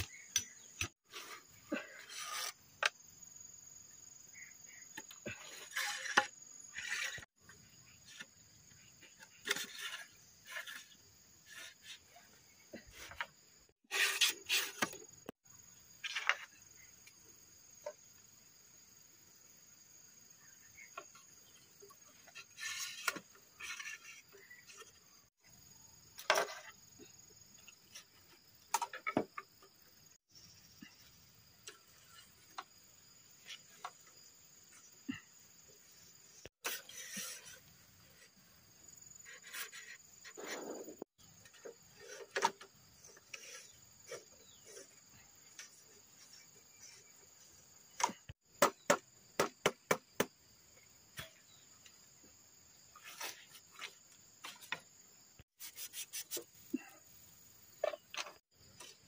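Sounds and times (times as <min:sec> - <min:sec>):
high insect trill: 0:13.2 - 0:59.0
bamboo poles knocking and clattering: 0:26.2 - 0:29.8, 0:41.4 - 0:47.0, 0:47.9 - 0:50.3, 0:57.8 - 0:59.0.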